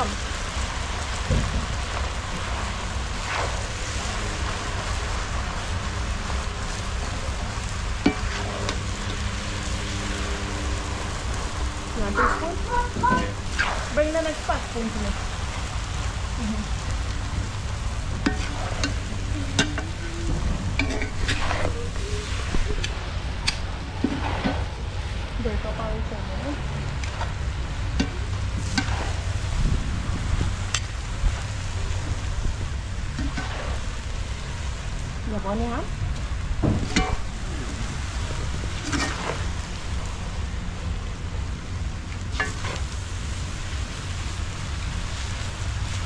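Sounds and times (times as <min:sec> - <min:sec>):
noodles sizzling in a pot: 0:00.0 - 0:46.0
stirring scrape in pot: 0:18.2 - 0:20.0, 0:20.7 - 0:24.7, 0:33.2 - 0:33.8, 0:38.8 - 0:39.5.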